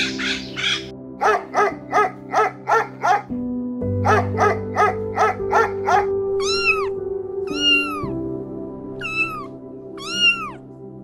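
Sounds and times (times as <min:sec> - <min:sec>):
background music: 0:00.0 - 0:11.0
puppies yipping: 0:05.2 - 0:06.9, 0:07.5 - 0:08.1, 0:09.0 - 0:10.6
kitten meowing: 0:06.4 - 0:08.2, 0:09.0 - 0:10.7.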